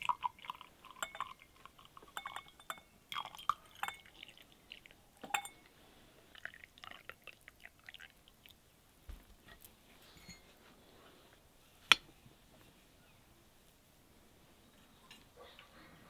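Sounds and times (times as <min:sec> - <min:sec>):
tea pouring and splashing: 0:00.0 - 0:08.6
glass clinks: 0:01.0 - 0:01.4, 0:02.1 - 0:04.1, 0:05.2 - 0:05.6.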